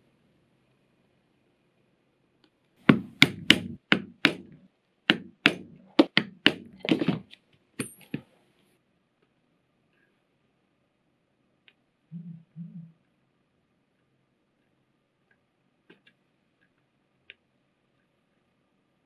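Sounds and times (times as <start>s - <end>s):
mallet striking leather chisel: 2.8s - 7.2s.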